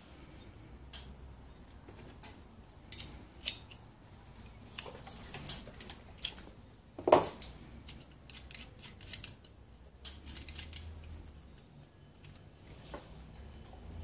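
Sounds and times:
small metal clicks and clinks: 0:07.9 - 0:12.8.

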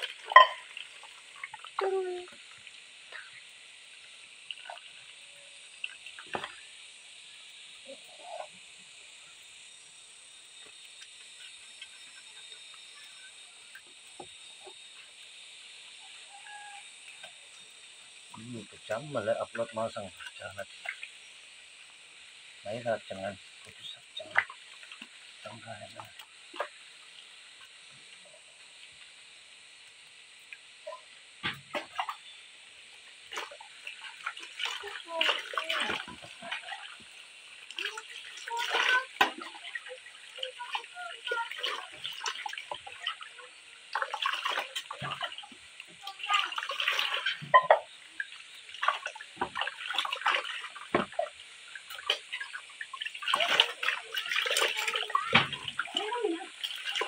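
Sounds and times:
water splashes: 0:00.0 - 0:09.7, 0:10.3 - 0:57.0
steel cup knocking: 0:00.4 - 0:00.6.

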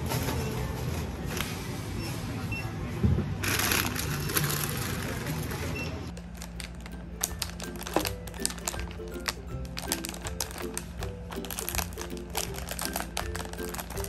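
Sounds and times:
plastic wrapper crinkling: 0:03.4 - 0:05.4, 0:06.1 - 0:14.0
plastic snack bags rustling: 0:03.4 - 0:14.0
soft background music: 0:06.1 - 0:14.0.

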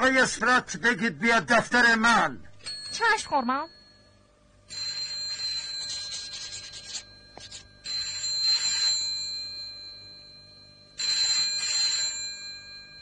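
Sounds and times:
telephone bell ringing: 0:02.6 - 0:13.0.

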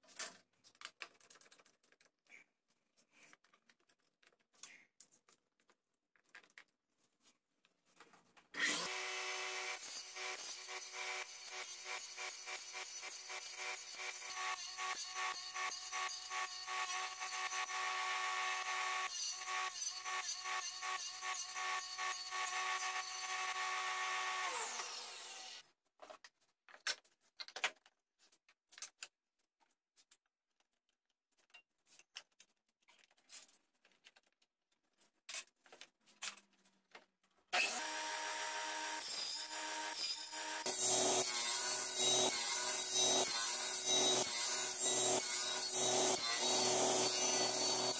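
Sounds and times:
saw blade winding down: 0:08.6 - 0:25.6, 0:37.6 - 0:47.9
table saw cutting: 0:08.6 - 0:25.7, 0:37.5 - 0:47.9.

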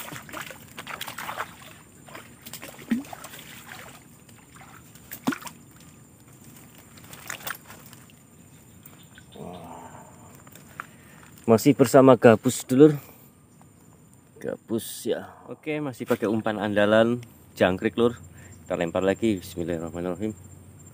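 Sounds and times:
fish splashing at water surface: 0:00.0 - 0:06.0, 0:06.9 - 0:08.2
light water sloshing: 0:00.0 - 0:09.3.

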